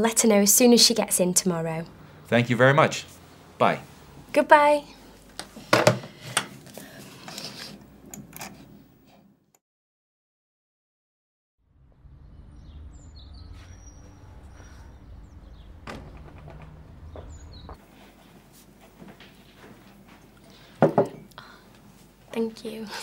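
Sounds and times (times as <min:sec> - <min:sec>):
diesel engine idling: 0:11.7 - 0:17.8
bird chirps: 0:12.0 - 0:17.8.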